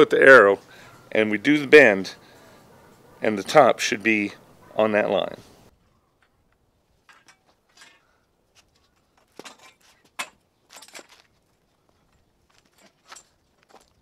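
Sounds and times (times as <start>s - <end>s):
metal clicks creaks and scrapes: 6.2s - 11.4s.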